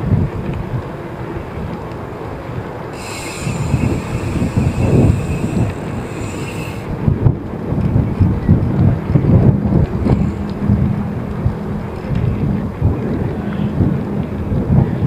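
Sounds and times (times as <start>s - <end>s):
bicycle tyre rumble on asphalt: 0.0s - 15.0s
wind buffeting microphone: 0.0s - 15.0s
high squealing hiss: 3.0s - 6.9s.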